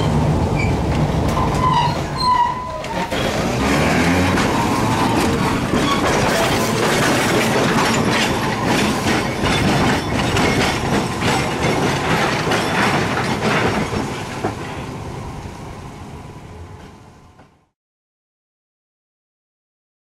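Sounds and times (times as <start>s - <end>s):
wheels clicking over rail joints: 0.0s - 15.5s
tram rolling past: 0.0s - 17.8s.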